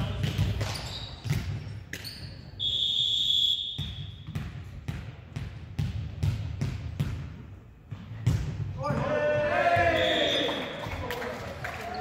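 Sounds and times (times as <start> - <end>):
ball bouncing on gym floor: 0.0 - 2.5, 3.8 - 10.0
referee's whistle blast: 2.6 - 4.2, 9.8 - 10.8.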